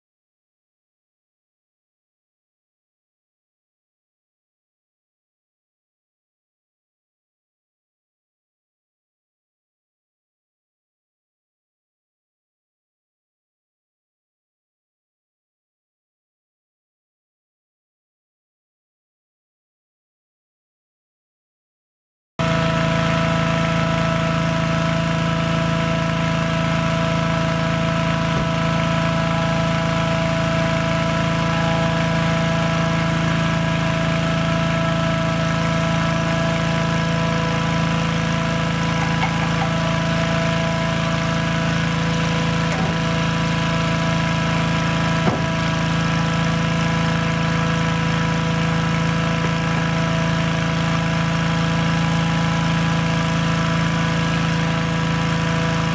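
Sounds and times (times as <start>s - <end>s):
inflator fan running: 22.4s - 55.9s.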